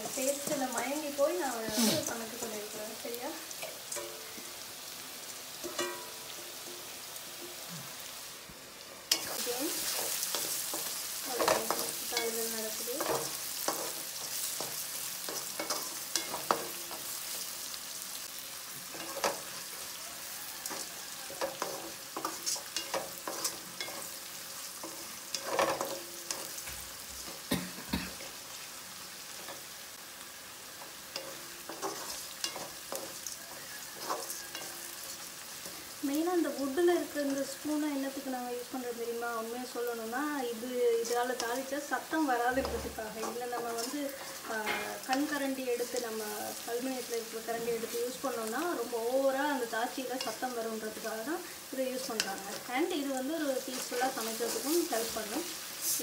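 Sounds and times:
food sizzling in hot oil: 0.0 - 56.0
spatula scraping a metal pan: 31.2 - 35.9.

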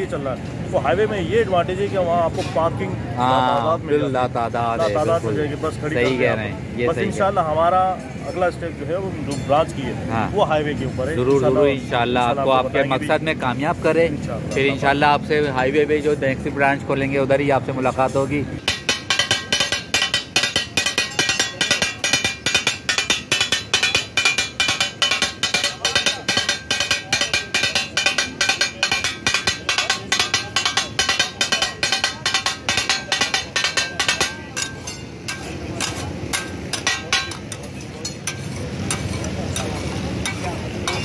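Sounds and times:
steel blades chopping on griddle: 18.6 - 41.0.

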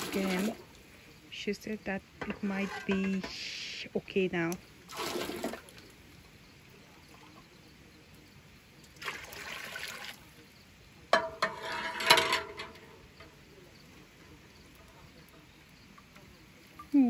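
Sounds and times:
water sloshing: 0.0 - 0.9, 4.9 - 5.9
metal clatter: 2.2 - 3.4, 11.1 - 13.4.

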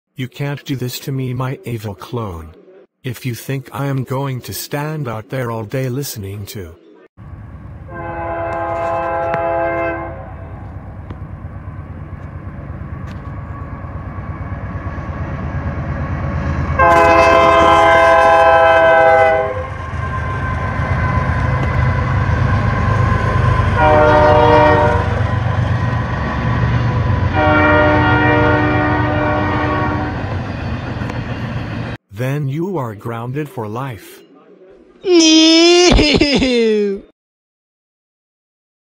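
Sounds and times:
locomotive rumble: 7.2 - 32.0
train horn blasts: 7.9 - 10.7, 16.8 - 20.8, 23.6 - 25.2, 27.3 - 30.2.

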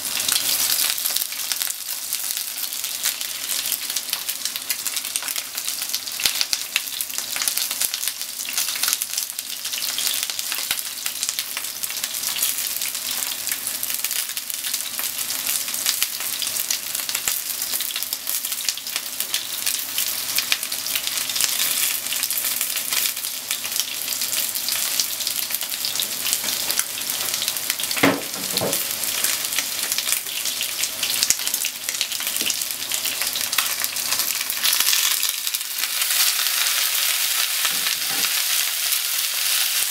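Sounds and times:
chicken sizzling in oil: 0.0 - 39.9
knock: 28.0 - 28.9.

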